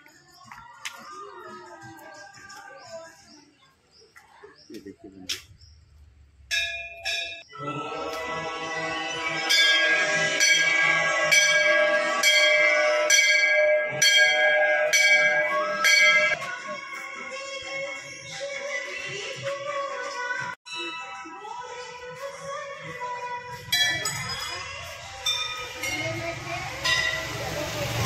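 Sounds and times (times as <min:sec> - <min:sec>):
temple bell ringing: 0:06.5 - 0:07.5, 0:09.4 - 0:16.4, 0:23.7 - 0:28.0.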